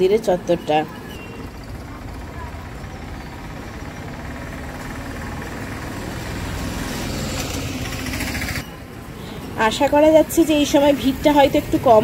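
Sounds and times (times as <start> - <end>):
motor vehicle engine running: 1.4 - 8.7.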